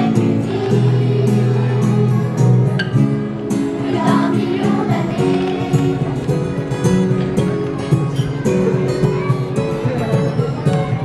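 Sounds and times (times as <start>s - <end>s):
children's choir singing: 0.0s - 7.7s
acoustic guitar: 0.0s - 11.0s.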